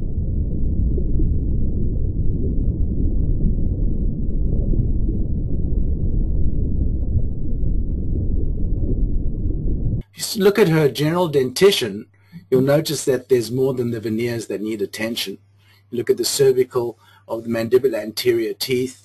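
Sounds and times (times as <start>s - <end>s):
loud low rumbling: 0.0s - 10.0s.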